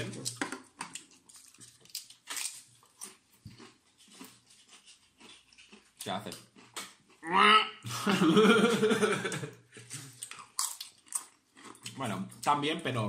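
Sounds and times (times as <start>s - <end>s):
chewing crisp potato chips: 0.0s - 7.3s, 9.8s - 12.6s.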